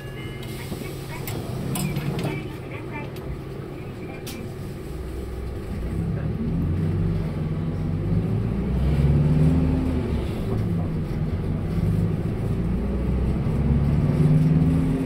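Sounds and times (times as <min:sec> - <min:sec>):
bus engine accelerating: 0:00.0 - 0:15.0.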